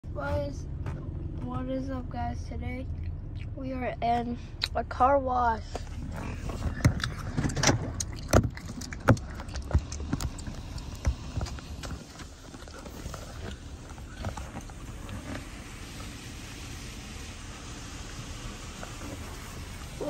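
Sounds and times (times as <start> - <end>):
car wash spray hiss: 13.6 - 20.0.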